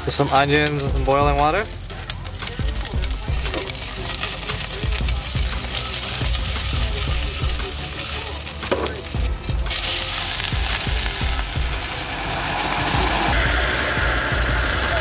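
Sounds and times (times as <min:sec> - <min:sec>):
onions sizzling in a pot: 0:00.0 - 0:15.0
water hissing into steam: 0:03.2 - 0:15.0.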